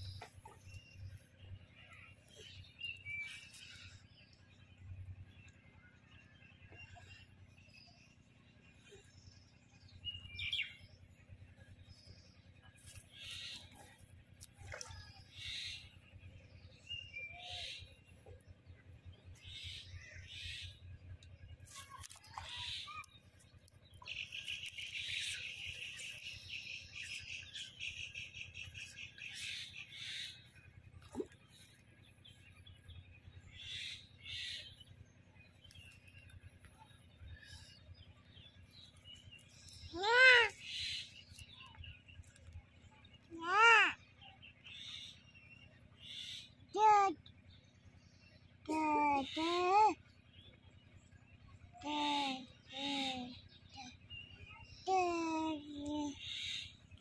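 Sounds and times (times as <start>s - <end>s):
birds chirping: 0.0s - 57.0s
loud pitched bird call: 27.5s - 30.4s, 33.6s - 34.8s, 56.1s - 56.8s.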